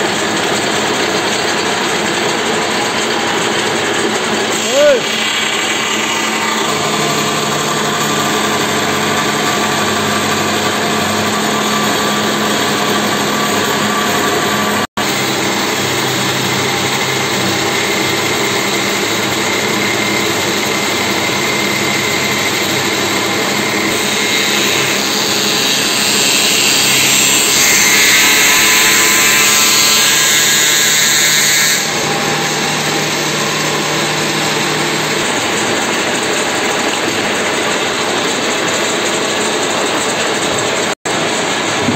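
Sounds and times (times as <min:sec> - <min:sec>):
machine cutting wooden plank: 0:00.0 - 0:41.9
woodworking machine humming: 0:00.0 - 0:41.9.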